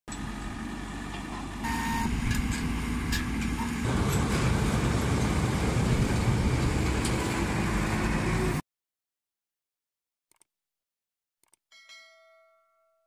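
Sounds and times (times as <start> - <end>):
diesel engine rumbling: 0.1 - 8.6.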